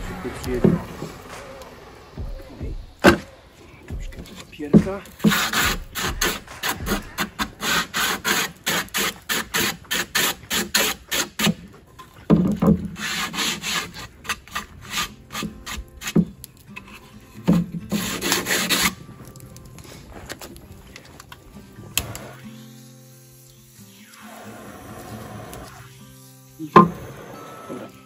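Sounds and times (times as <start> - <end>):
sandpaper rasping on wood: 5.1 - 11.6, 12.8 - 16.3, 17.9 - 19.0.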